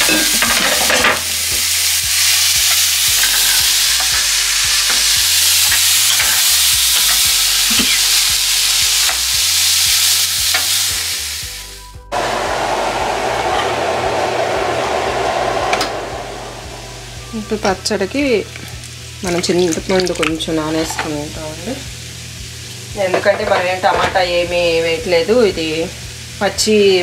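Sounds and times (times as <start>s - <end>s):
food sizzling in hot oil: 0.0s - 11.8s, 16.6s - 27.0s.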